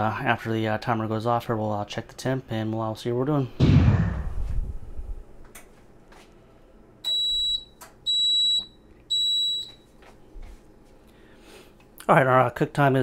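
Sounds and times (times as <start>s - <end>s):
toaster oven timer beeping: 7.0s - 9.9s.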